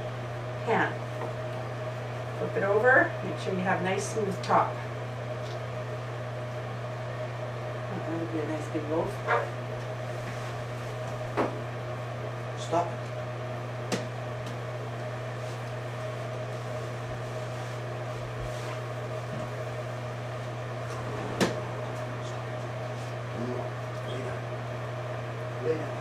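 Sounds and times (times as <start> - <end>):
steady low hum: 19.2 - 26.0.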